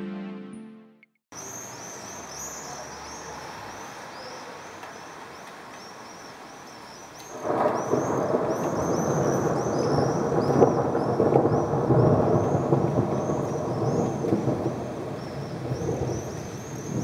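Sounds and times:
background music: 0.0s - 1.2s
small birds calling: 1.4s - 17.0s
thunder rumbling: 7.3s - 17.0s.

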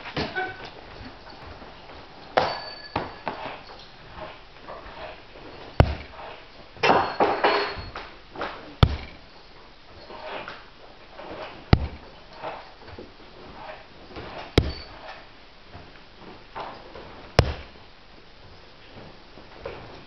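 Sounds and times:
faint high ringing: 0.3s - 3.8s, 6.8s - 8.1s, 14.6s - 15.1s
metallic clinks and clatter: 0.9s - 3.9s, 5.4s - 8.0s
throwing spikes striking a target: 5.8s - 6.2s, 8.8s - 9.2s.

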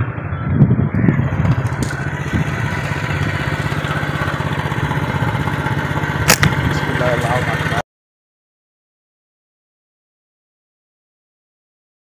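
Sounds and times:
small engine idling: 0.8s - 7.8s
sharp click: 6.3s - 6.6s.

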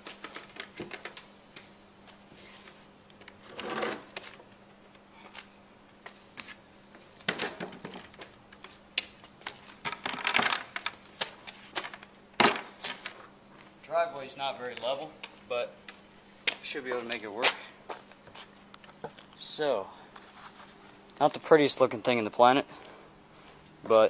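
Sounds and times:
wood scraping on concrete: 3.4s - 4.2s.

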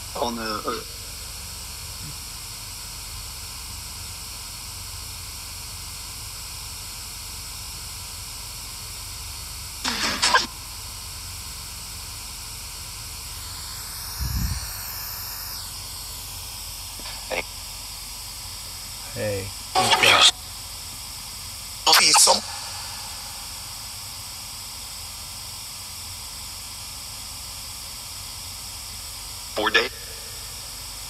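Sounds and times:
radio static hiss: 0.0s - 2.4s, 9.8s - 10.5s, 13.2s - 20.8s, 21.8s - 25.2s, 29.0s - 31.0s
garbled voice fragment: 17.0s - 17.4s, 19.8s - 20.4s, 21.9s - 23.3s, 29.6s - 30.5s.

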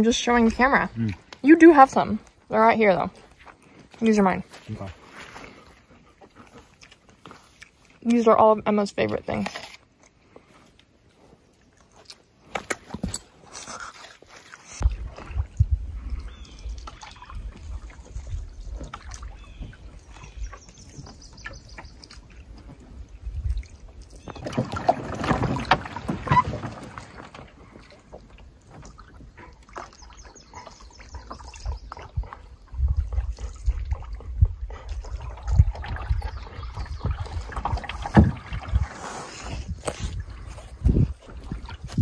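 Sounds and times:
paddle strokes splashing water: 13.3s - 42.0s
wind rumble on microphone: 14.8s - 20.6s, 22.6s - 24.3s, 31.1s - 42.0s.

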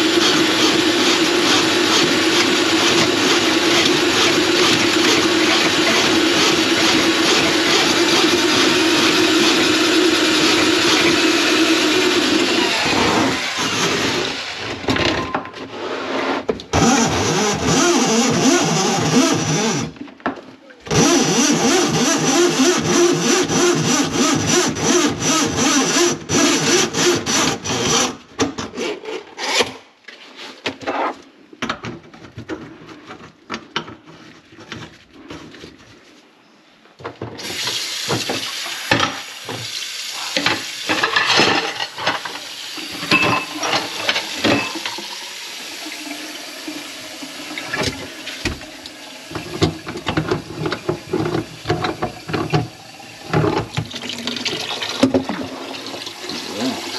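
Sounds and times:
water running into sink: 37.4s - 56.9s
dish clatter: 40.4s - 45.1s.

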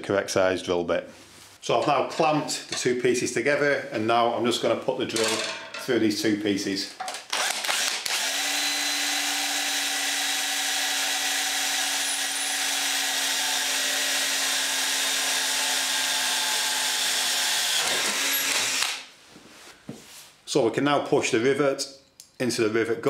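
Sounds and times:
power drill boring through metal: 7.3s - 19.1s.

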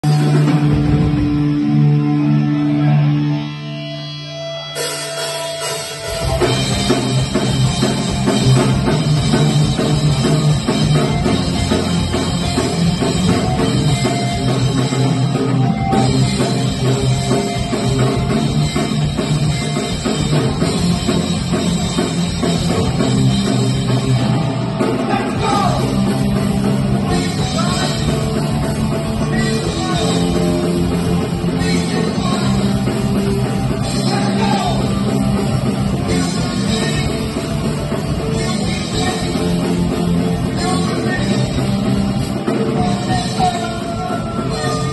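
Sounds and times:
punk rock band playing live: 0.0s - 44.9s.

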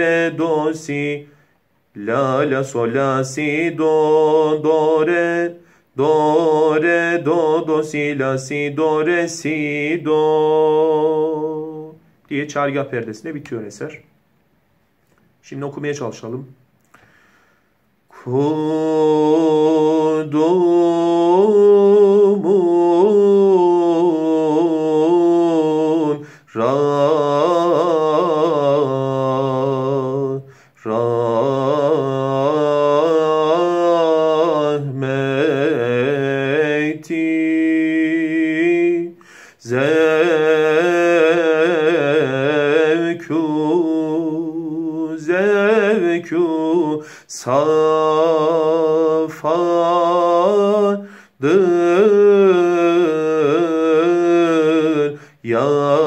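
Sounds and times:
man singing unaccompanied: 0.0s - 14.1s, 18.1s - 56.0s.

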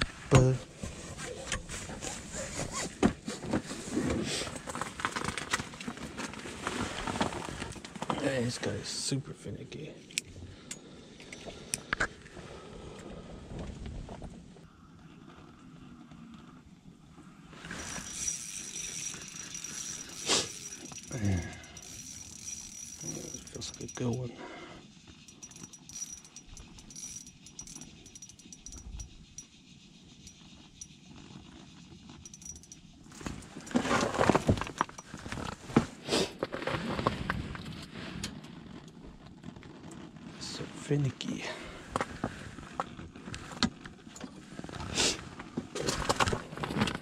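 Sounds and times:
rustling: 0.0s - 8.6s, 30.2s - 40.9s
fishing reel whirring: 17.6s - 24.2s, 25.2s - 29.5s.

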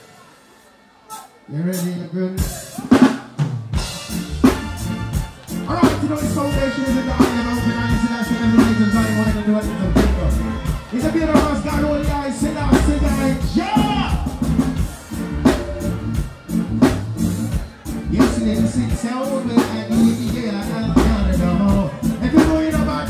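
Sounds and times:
live reggae band playing: 0.0s - 23.0s
man singing through speakers: 1.2s - 3.1s, 5.6s - 14.4s, 17.9s - 23.0s
drum kit beat: 2.4s - 23.0s.

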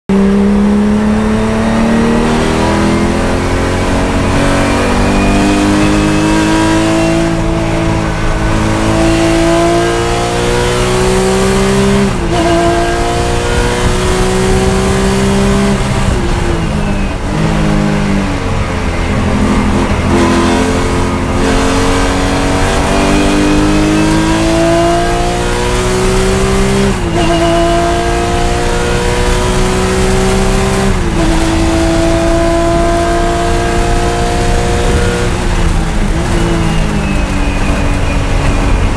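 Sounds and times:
race car engine at full throttle: 0.1s - 38.9s.

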